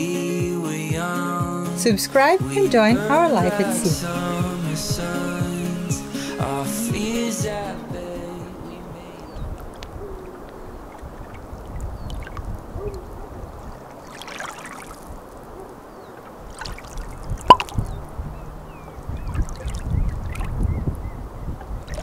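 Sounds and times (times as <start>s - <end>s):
underwater noise: 8.6s - 22.0s.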